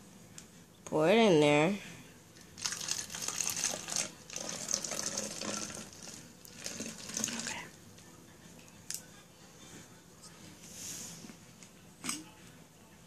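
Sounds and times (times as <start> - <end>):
liquid pouring into plastic bottle: 2.5 - 7.7.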